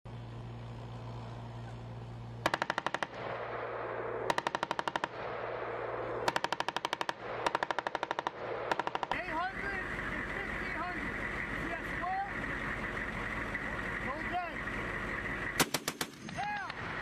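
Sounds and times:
low hum: 0:00.1 - 0:17.0
machine gun bursts: 0:15.6 - 0:16.4.

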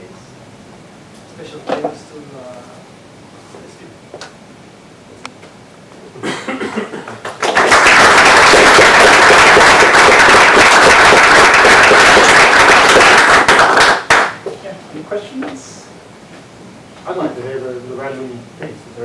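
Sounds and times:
audience applause: 0:07.1 - 0:14.4.

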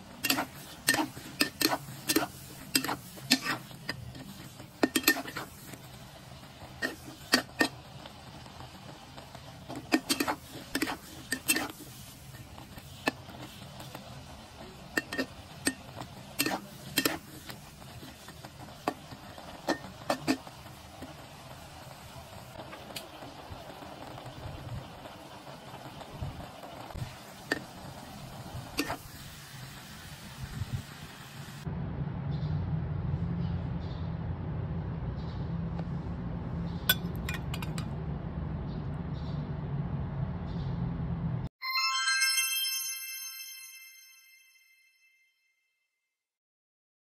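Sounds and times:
metal spatula clinking on wok: 0:04.8 - 0:05.5, 0:14.9 - 0:17.3, 0:36.9 - 0:37.9
spoon clinking on plate: 0:36.9 - 0:37.9.

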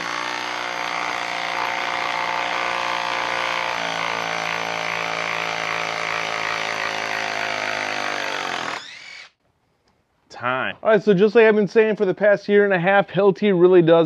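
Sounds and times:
impact driver running: 0:00.0 - 0:09.3.

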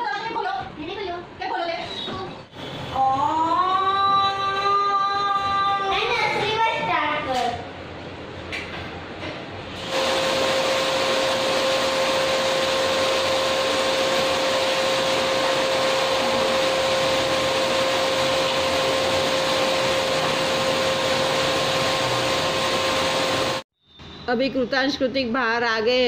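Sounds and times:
vacuum cleaner running: 0:09.8 - 0:23.7.

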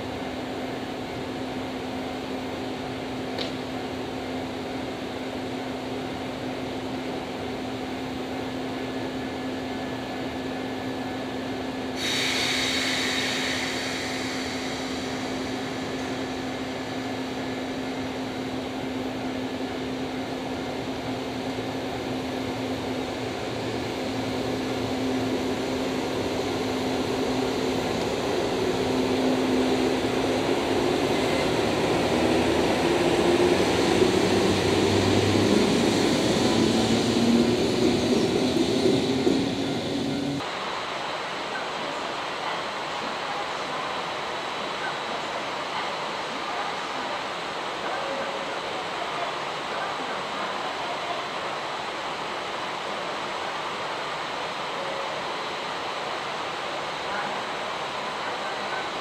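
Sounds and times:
electric locomotive humming: 0:00.0 - 0:59.0
sudden hiss: 0:11.9 - 0:17.4
rising whine: 0:23.1 - 0:40.4.

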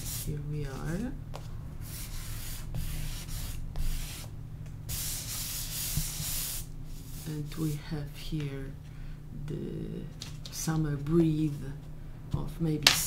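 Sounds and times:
pastel scraping on paper: 0:04.9 - 0:07.3.

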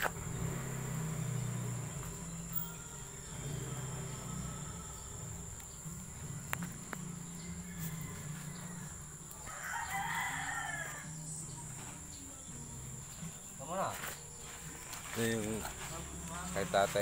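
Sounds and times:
high insect drone: 0:00.0 - 0:17.0
rooster crowing: 0:07.1 - 0:11.5.

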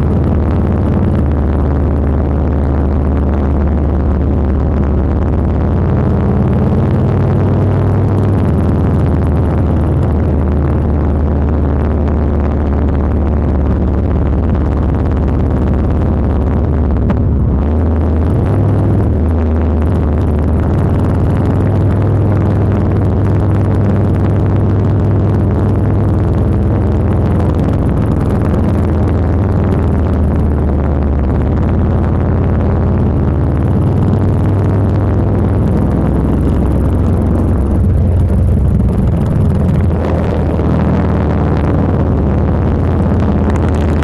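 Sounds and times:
motorcycle engine running: 0:00.0 - 0:44.0.

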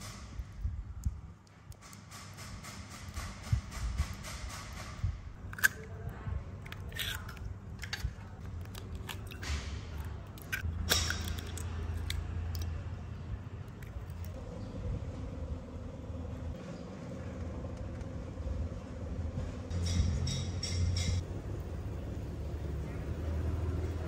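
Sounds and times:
steady low hum: 0:00.0 - 0:24.0
utensils clicking and scraping food: 0:05.4 - 0:12.7.

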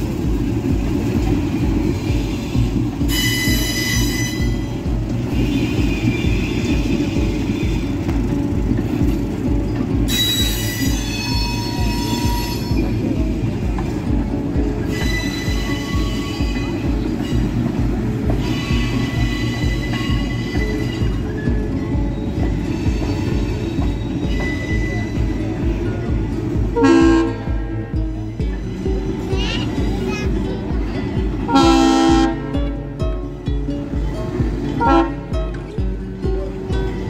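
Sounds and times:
freight train rumbling: 0:00.0 - 0:37.0
train wheel squeal: 0:01.5 - 0:08.2, 0:10.0 - 0:13.6, 0:14.8 - 0:26.1.

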